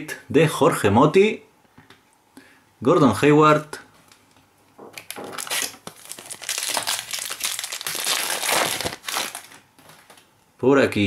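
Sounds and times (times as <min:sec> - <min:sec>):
foil wrapper crinkling and tearing: 0:05.0 - 0:10.2.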